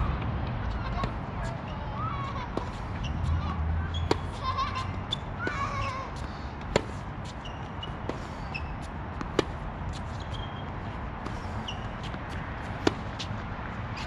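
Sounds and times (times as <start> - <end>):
tennis ball struck by rackets: 5.4 - 7.1, 9.1 - 9.6, 11.2 - 13.3
short high squeaks: 10.1 - 10.6.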